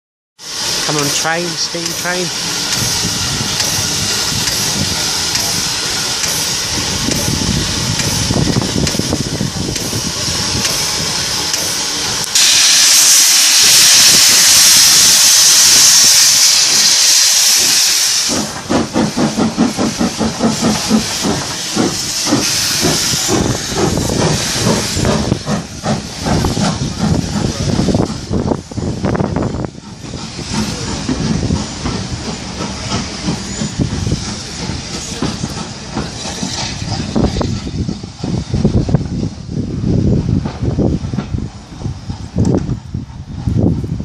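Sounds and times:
loud steam blast: 0:00.4 - 0:42.2
steam locomotive hissing: 0:00.4 - 0:44.0
locomotive chuffing exhaust beats: 0:00.5 - 0:44.0.

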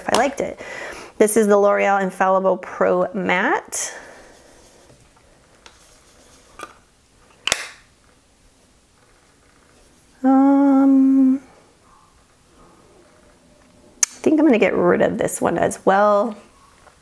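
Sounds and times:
woman humming: 0:10.2 - 0:11.6.

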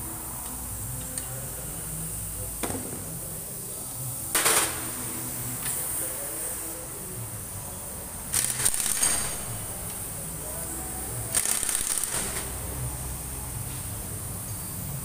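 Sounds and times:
pneumatic air tool hissing burst: 0:08.3 - 0:10.0, 0:11.3 - 0:12.9.

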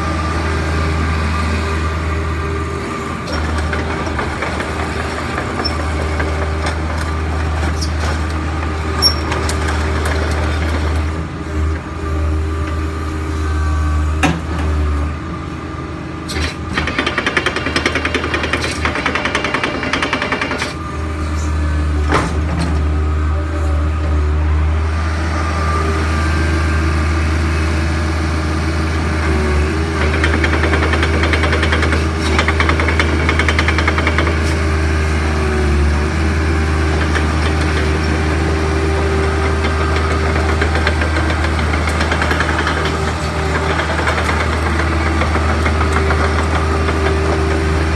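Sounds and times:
excavator diesel engine clattering: 0:02.8 - 0:12.9, 0:16.2 - 0:24.4, 0:28.5 - 0:47.9.

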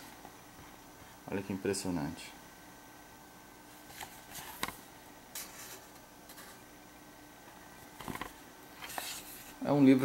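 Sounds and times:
pages rustling: 0:03.8 - 0:04.8, 0:08.0 - 0:09.6.

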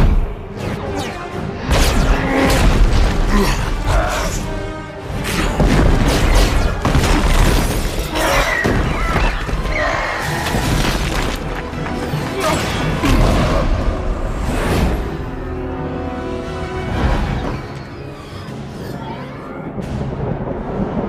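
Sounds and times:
orchestral action music: 0:00.0 - 0:21.0
crashes and shattering debris: 0:05.4 - 0:13.7.

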